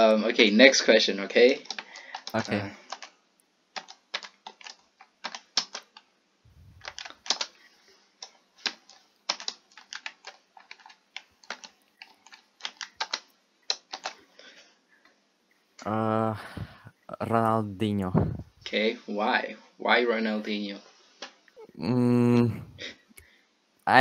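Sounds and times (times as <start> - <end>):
typing on computer keyboard: 1.6 - 3.1, 3.7 - 6.1, 6.8 - 7.6, 8.2 - 14.2.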